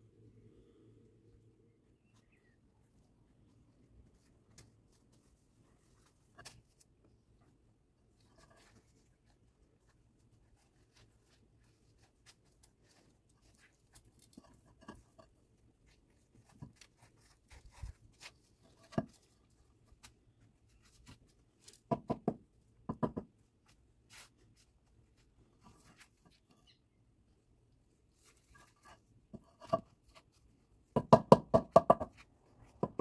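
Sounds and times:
concrete tiles knocking: 21.8s - 23.4s, 30.9s - 33.0s.

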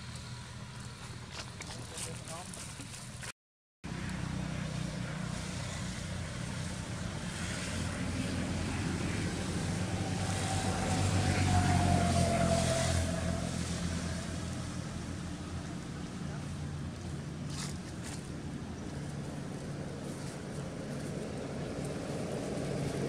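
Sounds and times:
vehicle engine humming: 0.0s - 23.0s.

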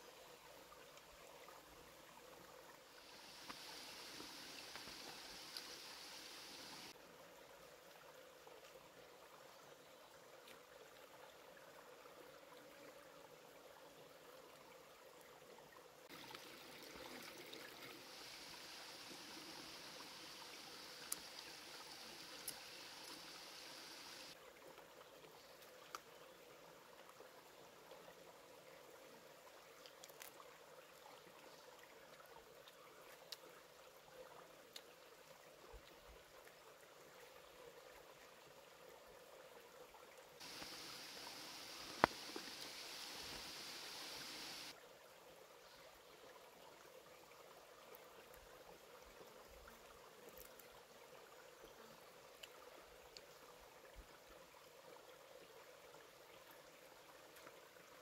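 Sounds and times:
faint trickling water: 0.0s - 58.0s
steady low hiss: 2.9s - 7.4s, 17.7s - 24.4s, 40.4s - 44.8s
loud hiss: 3.1s - 6.9s, 18.0s - 24.3s, 40.4s - 44.7s.

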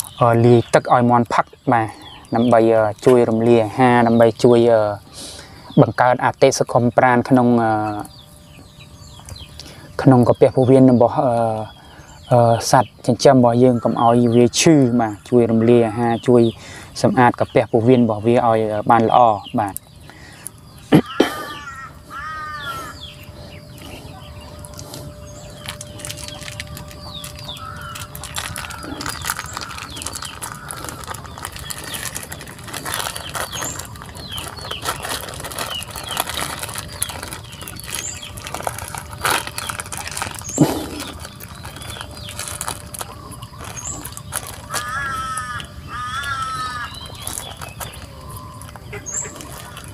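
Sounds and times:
plastic crinkling: 23.2s - 49.9s
hen clucking: 42.0s - 49.9s.

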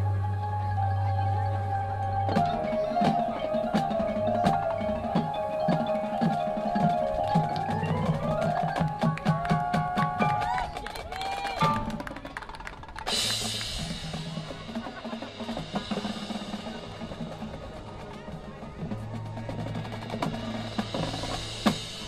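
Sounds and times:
marimba and mallet percussion: 0.0s - 10.7s
marching band playing: 0.0s - 22.0s.

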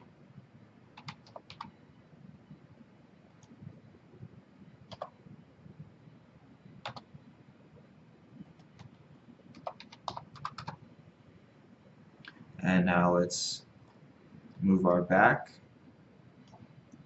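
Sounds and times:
keyboard keystrokes: 1.0s - 1.7s, 4.9s - 5.1s, 6.8s - 7.1s, 8.6s - 10.8s.

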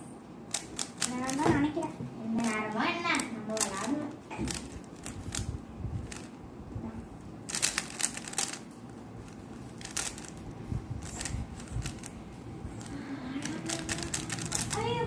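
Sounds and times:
plastic puzzle cube clicking: 0.5s - 1.5s, 4.5s - 6.3s, 7.5s - 8.6s, 9.8s - 10.4s, 11.0s - 12.1s, 13.4s - 14.9s.

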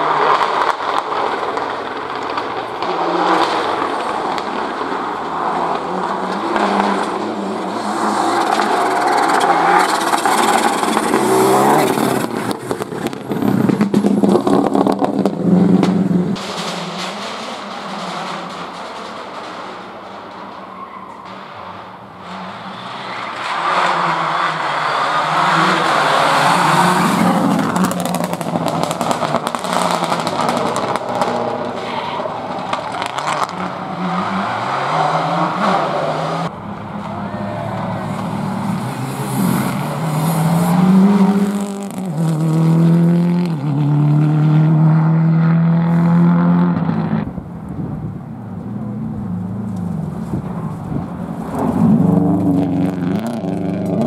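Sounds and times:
car engine shifting gears: 0.0s - 18.0s, 23.2s - 54.0s
rally car engines revving: 0.0s - 54.0s
tyre squeal: 20.4s - 21.6s, 22.2s - 27.4s.

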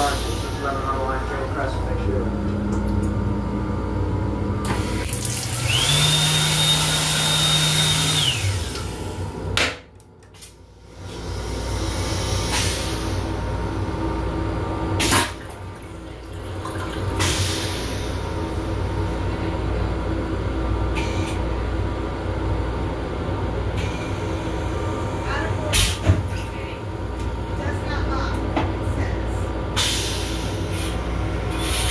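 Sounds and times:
washbasin motor whining: 0.0s - 9.6s, 10.2s - 31.9s
toilet flushing: 4.6s - 9.3s, 14.9s - 19.5s.

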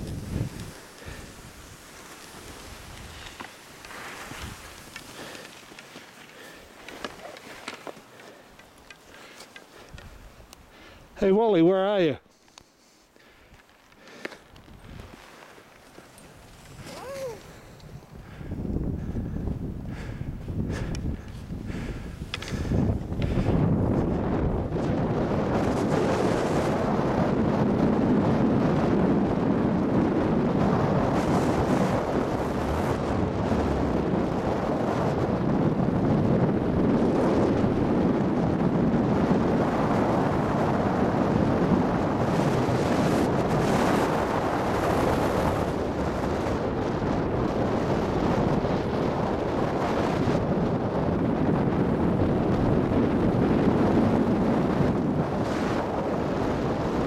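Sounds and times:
skis hissing on packed snow: 0.0s - 9.9s, 12.3s - 13.3s, 14.0s - 18.0s
wind rushing over microphone: 0.0s - 12.2s, 14.4s - 57.0s.

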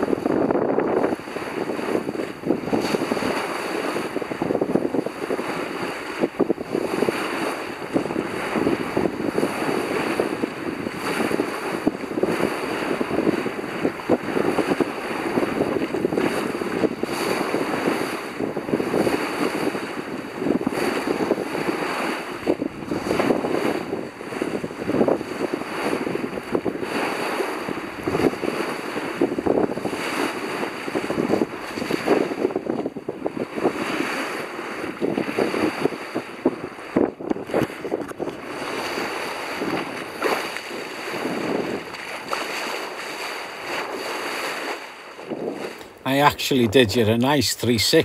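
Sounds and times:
wind buffeting microphone: 0.0s - 46.0s
water rushing along boat bow: 0.0s - 48.0s.

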